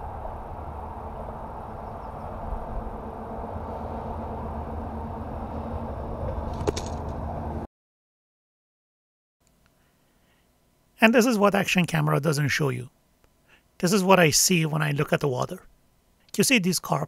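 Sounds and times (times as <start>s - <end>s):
faint hum: 0.0s - 7.7s, 9.4s - 17.0s
road traffic rumble: 0.0s - 7.7s.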